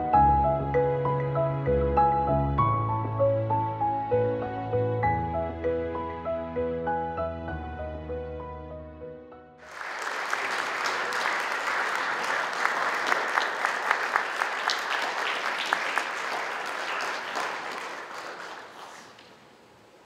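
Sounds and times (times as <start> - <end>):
audience applauding: 9.6 - 19.6.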